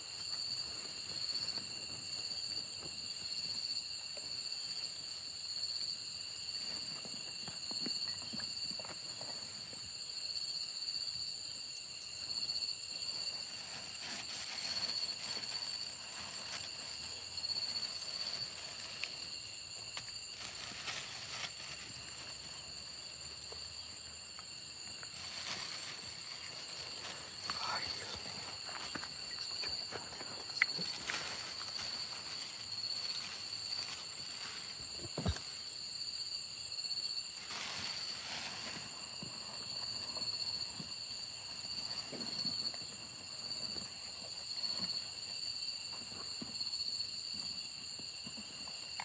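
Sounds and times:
night insects chorus: 0:00.0 - 0:49.0
footsteps on dry leaves: 0:20.2 - 0:23.0, 0:24.7 - 0:35.4.

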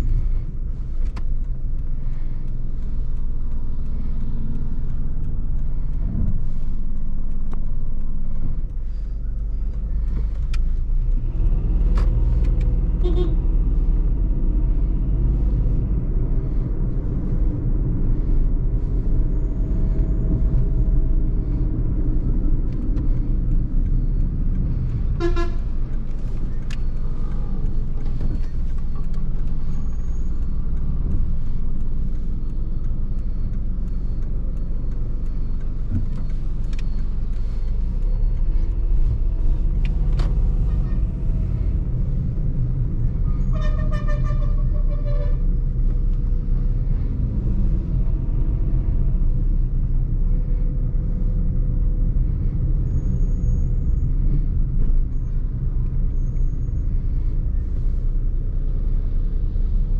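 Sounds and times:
car engine and tyres rumbling: 0:00.0 - 0:59.9
car horn toots: 0:13.0 - 0:13.5, 0:25.2 - 0:25.7, 0:43.4 - 0:45.5.

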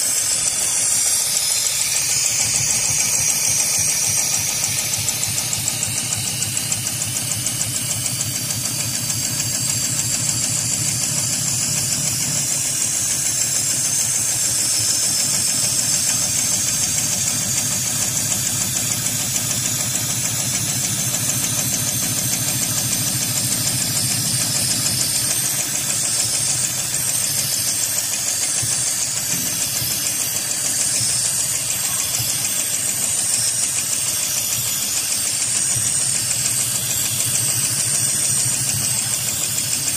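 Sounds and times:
sewing machine stitching: 0:00.0 - 0:39.9.

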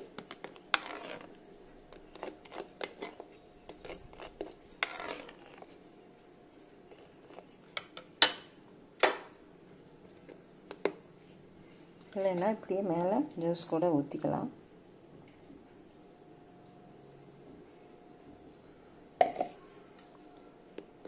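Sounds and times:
spoon scraping a plate: 0:00.5 - 0:01.4, 0:02.0 - 0:05.8.

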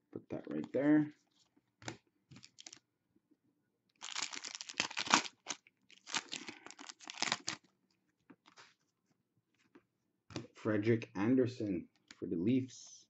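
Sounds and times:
foil card pack tearing and crinkling: 0:04.0 - 0:07.6.

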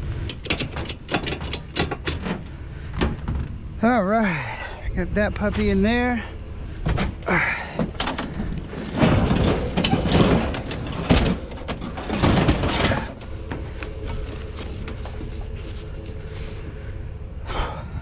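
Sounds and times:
vehicle engine hum: 0:00.0 - 0:18.0
items knocking and scraping: 0:00.3 - 0:03.6, 0:07.8 - 0:16.6.

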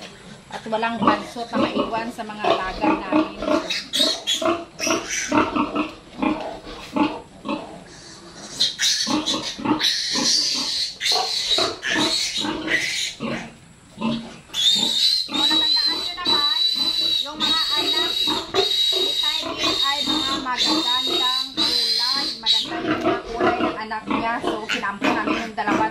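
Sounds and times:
piglet squealing: 0:02.6 - 0:05.8, 0:07.9 - 0:13.4, 0:14.5 - 0:25.9.

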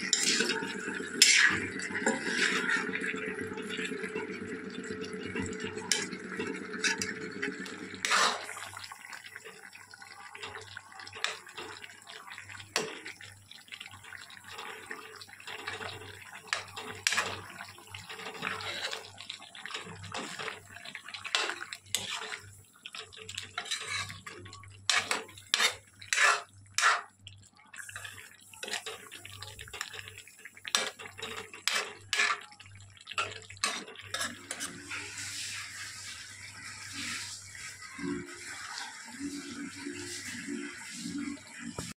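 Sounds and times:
metal ladle scraping pot: 0:00.0 - 0:03.1, 0:05.9 - 0:08.6, 0:15.4 - 0:20.6, 0:21.2 - 0:22.4, 0:23.0 - 0:27.1, 0:28.6 - 0:32.5, 0:33.2 - 0:35.5
curry simmering: 0:00.0 - 0:41.9.

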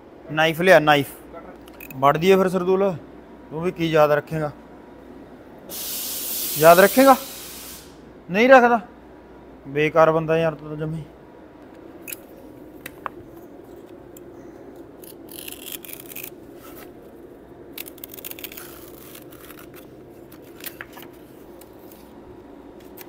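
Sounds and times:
steady low hum: 0:00.0 - 0:23.0
utility knife scoring wood veneer: 0:15.0 - 0:17.0, 0:17.8 - 0:20.0.

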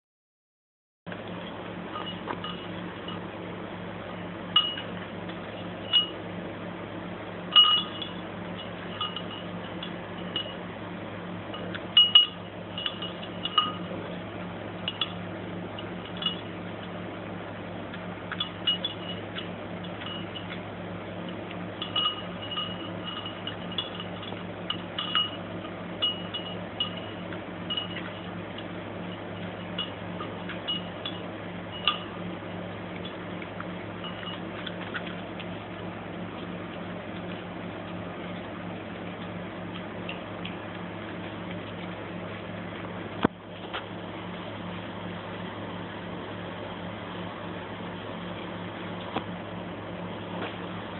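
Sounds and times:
steady low hum: 0:01.1 - 0:50.9
dog eating kibble: 0:11.6 - 0:43.8.

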